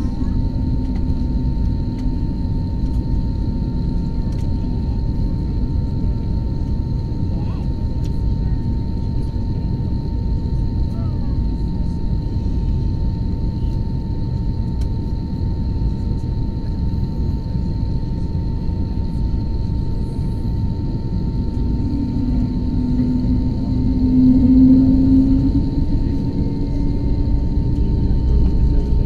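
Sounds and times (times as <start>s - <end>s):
jet engines rumbling with whine: 0.0s - 29.0s
low hum: 18.2s - 29.0s.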